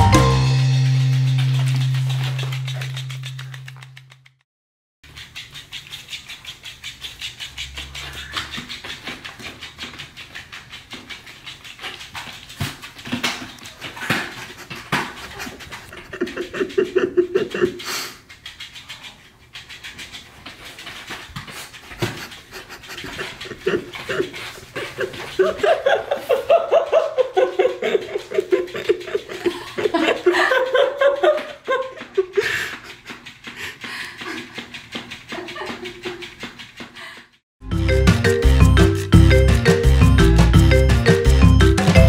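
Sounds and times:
dog panting: 5.1s - 37.4s.

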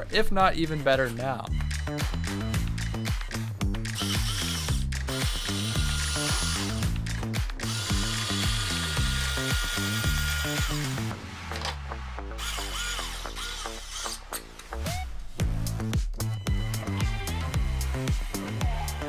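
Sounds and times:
background music: 0.0s - 19.0s
small electric motors whirring: 3.9s - 11.1s, 12.4s - 14.4s.

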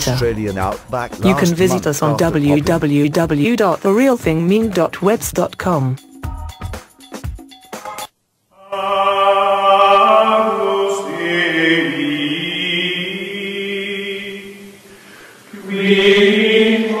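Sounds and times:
choir chanting sustained notes: 8.6s - 14.9s, 15.5s - 17.0s.

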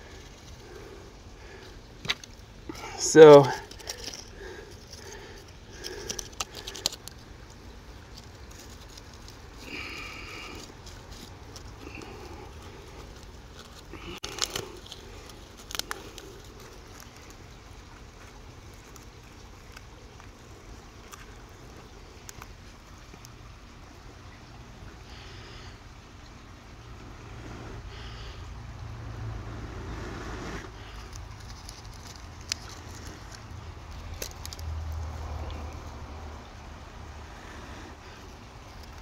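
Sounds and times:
dry tinder rustling and crackling: 0.0s - 23.5s, 30.6s - 36.0s, 38.0s - 39.0s.

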